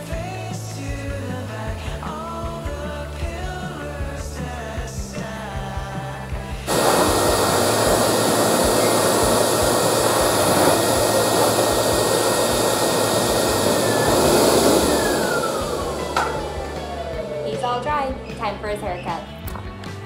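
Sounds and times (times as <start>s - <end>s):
grooming dryer blowing air: 6.6s - 17.9s.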